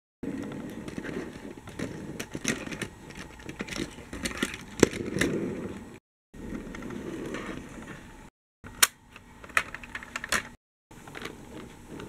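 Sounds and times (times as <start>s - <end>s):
toy bus rolling on mat: 0.2s - 8.1s.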